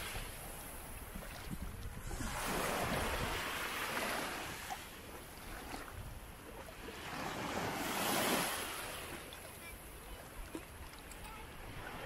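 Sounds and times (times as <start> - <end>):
sea waves washing in: 0.0 - 9.6.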